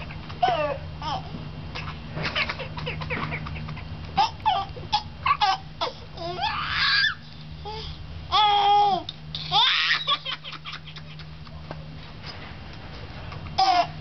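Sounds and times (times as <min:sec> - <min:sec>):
toddler laughing hysterically: 0:01.8 - 0:07.2, 0:09.4 - 0:11.6.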